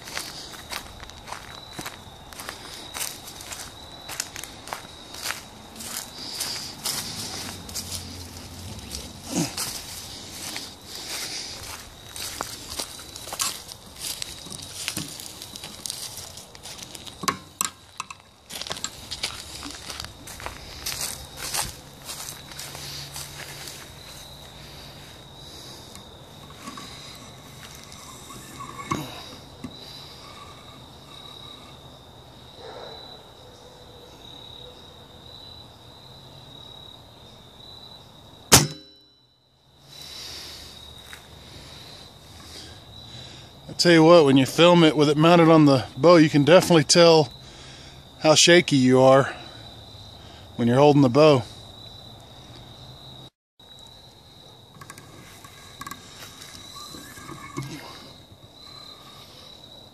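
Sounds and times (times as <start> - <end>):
footsteps through grass and leaves: 0.0 - 17.2, 17.8 - 28.3
high insect drone: 0.0 - 59.9.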